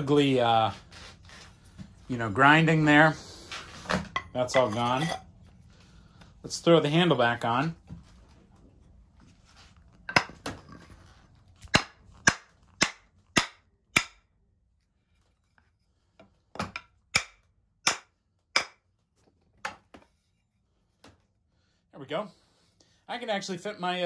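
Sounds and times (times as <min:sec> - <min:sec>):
wooden mallet knocking: 0:16.6 - 0:18.8.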